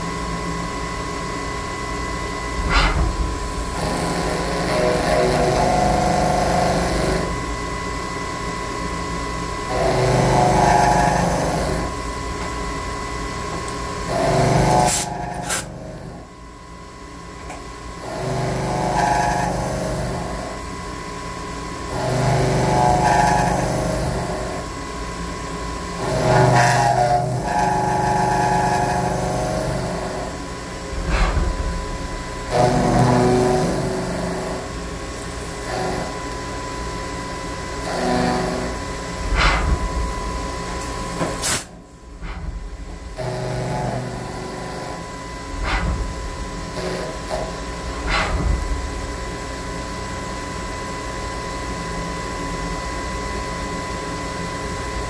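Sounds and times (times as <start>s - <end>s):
milling machine cutting metal: 2.0s - 7.4s, 9.6s - 12.5s, 13.9s - 16.1s, 18.0s - 20.5s, 21.9s - 24.7s, 26.0s - 49.2s.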